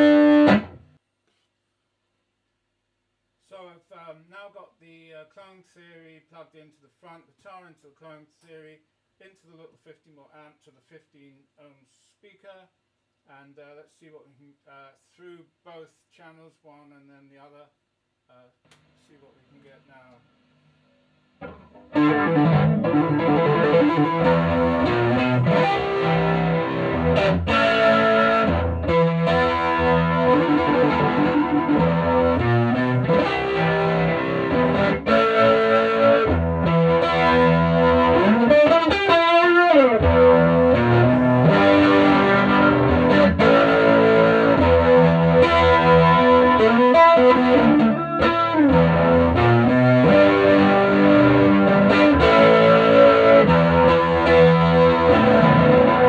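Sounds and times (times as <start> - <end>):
electric guitar chords and riffs: 0.0 - 0.8, 21.4 - 56.0.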